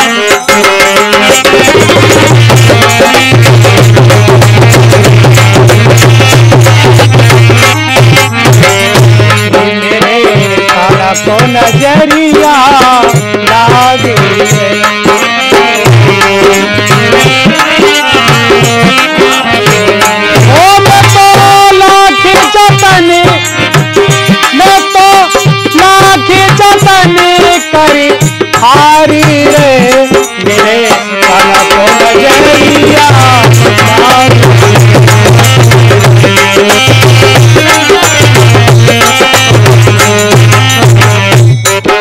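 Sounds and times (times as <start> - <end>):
hand drum rhythm: 0.0 - 42.0
harmonium melody: 0.0 - 42.0
man singing: 0.0 - 42.0.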